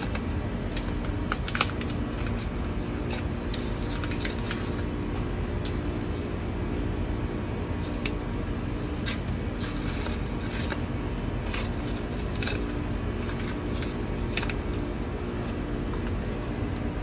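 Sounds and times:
masking tape ripping and crinkling: 0.0s - 4.9s, 11.4s - 16.4s
steady low hum: 0.0s - 17.0s.

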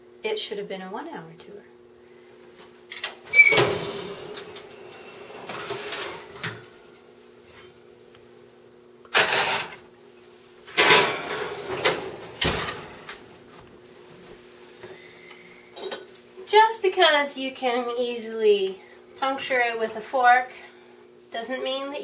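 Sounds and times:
oven door clack: 3.4s - 6.8s, 10.7s - 13.2s.

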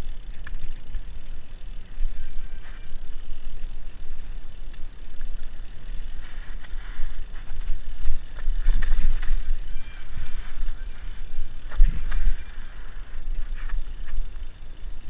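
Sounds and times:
bike rattling over rough dirt: 0.0s - 15.0s
wind buffeting microphone: 6.5s - 14.3s.

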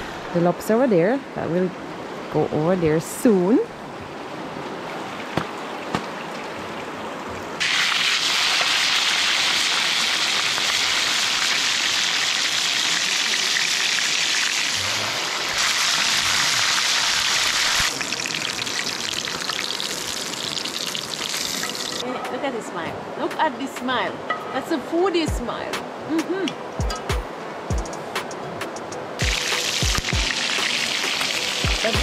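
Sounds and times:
running river water: 0.0s - 26.7s, 29.0s - 32.0s
fish sizzling in hot oil: 7.6s - 22.0s, 29.2s - 32.0s.

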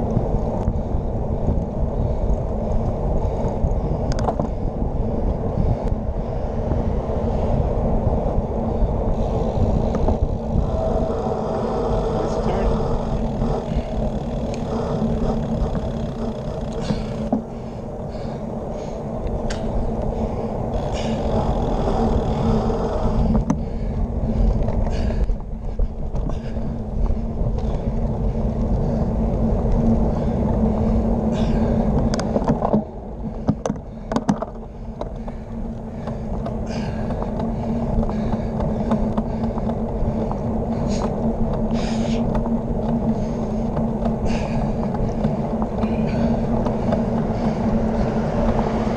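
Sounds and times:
bicycle tyre rumble: 0.0s - 48.9s
wind noise: 0.0s - 48.9s
bicycle knocking over bumps: 13.1s - 18.4s, 31.4s - 48.7s.

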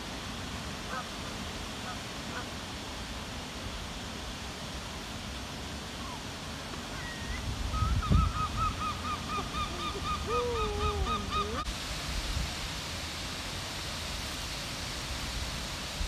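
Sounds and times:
waterfowl honking: 0.9s - 1.1s
low drawn-out bird call: 6.9s - 11.7s.

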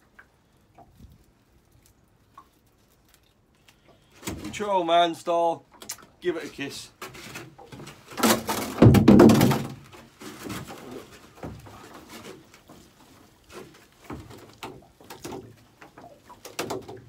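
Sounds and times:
net knocking and scraping: 7.0s - 17.0s.

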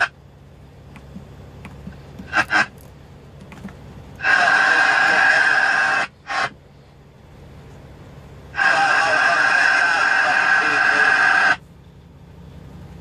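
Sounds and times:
radio background hiss: 1.9s - 2.7s, 3.6s - 7.0s, 8.4s - 11.8s
radio transmission noise: 1.9s - 2.8s, 4.2s - 6.6s, 8.5s - 11.7s.

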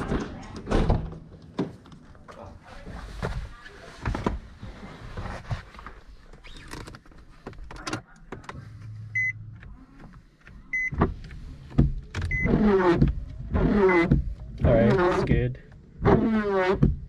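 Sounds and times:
dashboard warning chime beeping: 9.1s - 9.4s, 10.7s - 11.0s.

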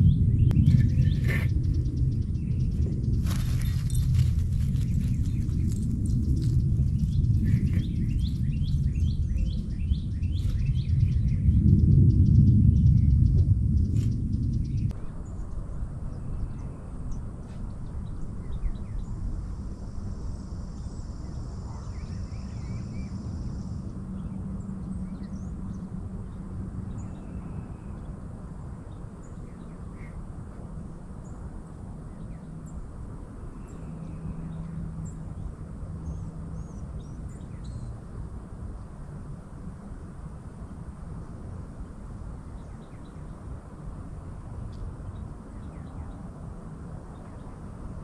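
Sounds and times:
bird chirps: 0.0s - 11.6s, 36.0s - 38.0s
low rumble: 0.0s - 28.9s
faint high whine: 14.8s - 48.0s.

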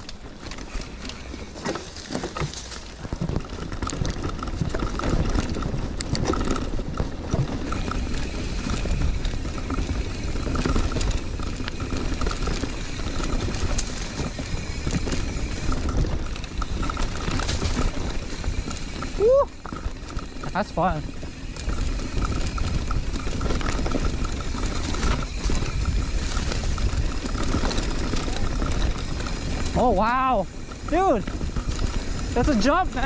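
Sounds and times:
bike clicks and rattles: 0.0s - 33.0s
bike tyres on dirt trail: 0.0s - 33.0s.

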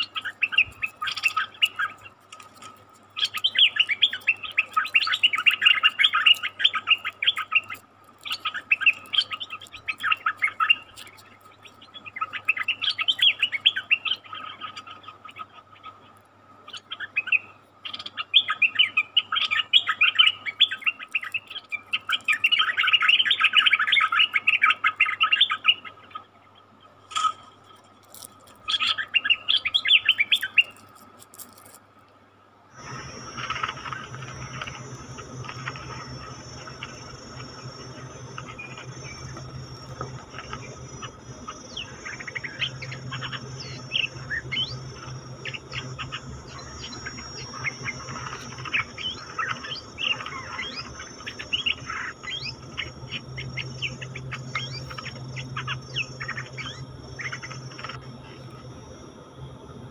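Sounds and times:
birds bubbling chatter: 0.0s - 27.4s, 32.7s - 58.5s
faint steady high tone: 32.6s - 59.9s.

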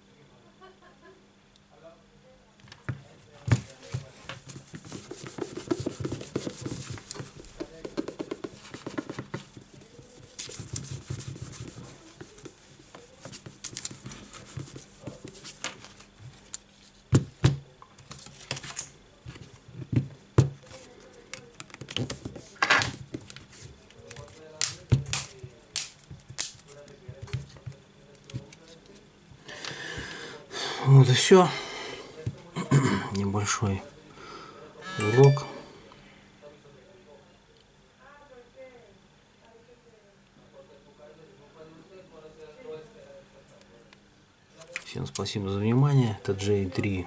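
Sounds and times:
tissue rubbing on glass screen: 3.7s - 17.0s.

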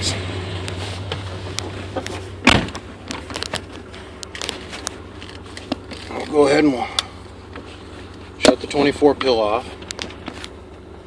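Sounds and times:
engine idling with low hum: 0.0s - 11.0s
small clicks and knocks: 0.7s - 6.3s
heavy thud: 1.0s - 3.0s.

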